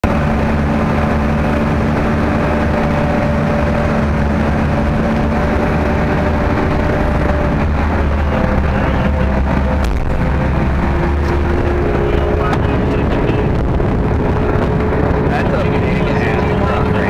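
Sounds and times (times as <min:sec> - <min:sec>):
constant hum: 0:00.0 - 0:17.0
diesel engine rumble: 0:00.0 - 0:17.0.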